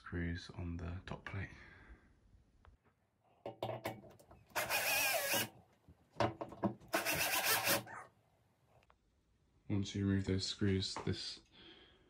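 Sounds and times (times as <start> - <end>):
cordless drill undoing screws: 4.2 - 5.6, 6.8 - 7.9.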